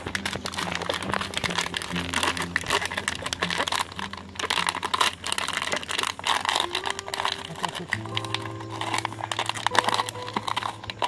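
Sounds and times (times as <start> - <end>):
ice chunks clicking: 0.0 - 11.0
plastic bottle crinkling: 0.0 - 11.0.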